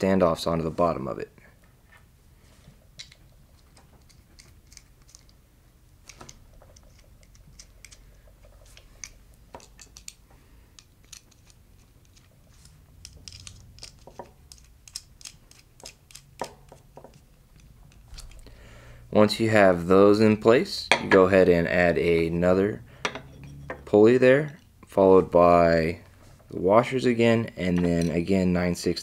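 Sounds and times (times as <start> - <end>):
metal parts clicking and tapping: 6.0 - 18.5, 23.0 - 23.8.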